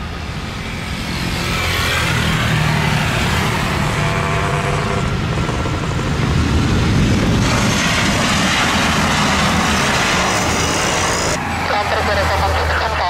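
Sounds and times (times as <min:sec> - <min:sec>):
jet engine roar: 0:00.0 - 0:13.0.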